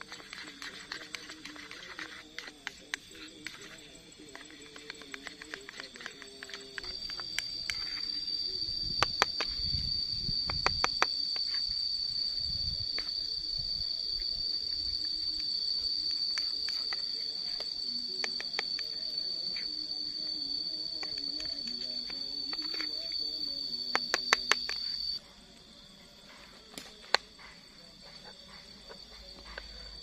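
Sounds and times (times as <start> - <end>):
spoon stirring batter: 0.0 - 7.9
high-pitched insect drone: 0.0 - 30.0.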